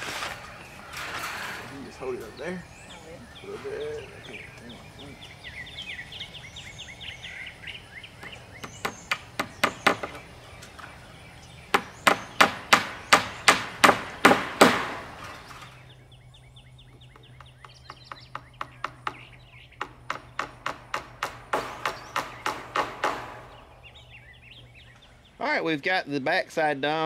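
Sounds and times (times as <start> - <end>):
hammer striking wooden frame: 8.2 - 10.2, 11.7 - 15.3, 17.1 - 23.6.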